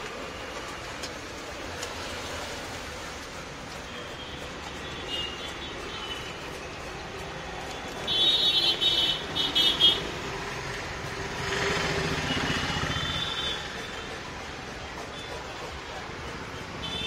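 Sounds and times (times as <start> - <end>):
motor vehicle passing close: 10.2 - 13.3.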